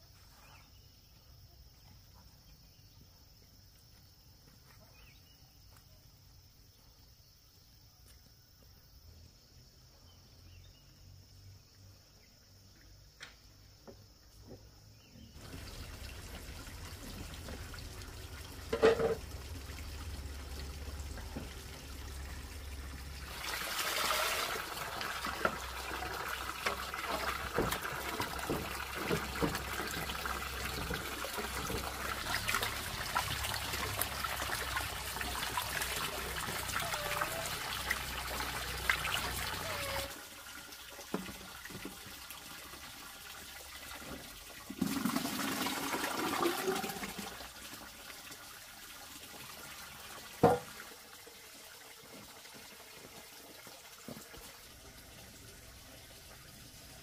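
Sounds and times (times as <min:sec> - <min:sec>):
trickling water with splashes: 0:15.4 - 0:57.0.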